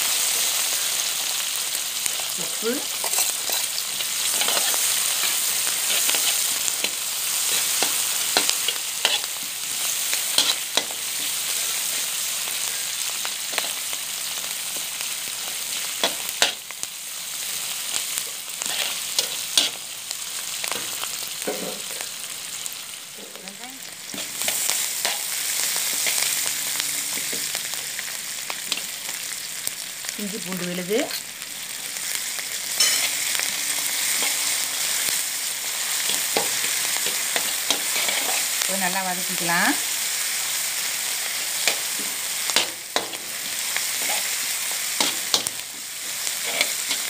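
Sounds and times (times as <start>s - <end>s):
onions sizzling in hot oil: 0.0s - 47.0s
metal spatula scraping wok: 2.5s - 12.0s, 18.6s - 19.8s, 32.7s - 35.2s, 35.9s - 38.6s, 41.4s - 45.6s, 46.2s - 47.0s.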